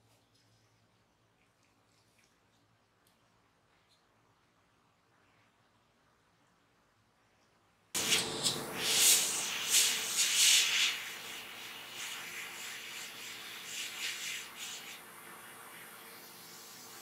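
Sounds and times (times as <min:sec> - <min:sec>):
airbrush hissing: 0:08.0 - 0:17.0.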